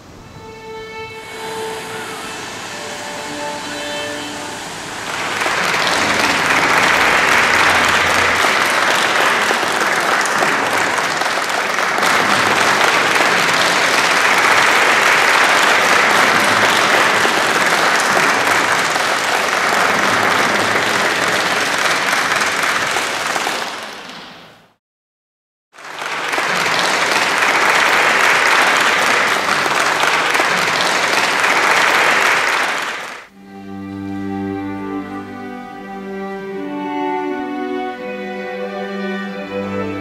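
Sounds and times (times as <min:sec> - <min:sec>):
held musical notes: 0:00.0 - 0:22.5, 0:33.3 - 0:40.0
audience clapping: 0:02.1 - 0:24.8, 0:25.7 - 0:33.4.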